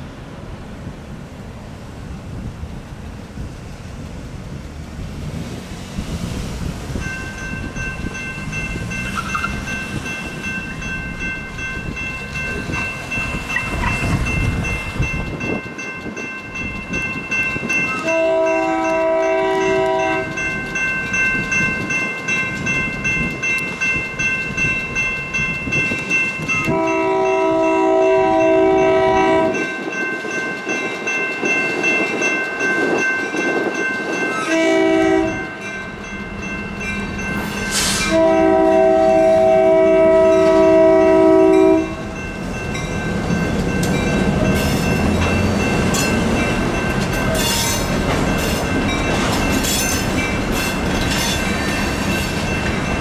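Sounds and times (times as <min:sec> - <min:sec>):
railroad crossing bell ringing: 0:06.9 - 0:53.0
locomotive horn blasts: 0:18.0 - 0:20.4, 0:26.6 - 0:29.6, 0:34.4 - 0:35.5, 0:37.8 - 0:42.0.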